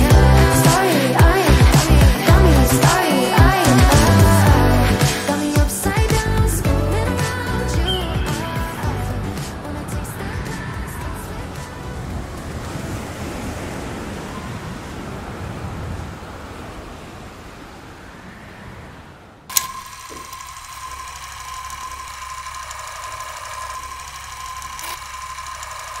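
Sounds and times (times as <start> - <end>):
high steady whine: 0.0 - 12.2, 19.5 - 26.0
low hum: 0.0 - 13.2
film projector running: 19.5 - 26.0.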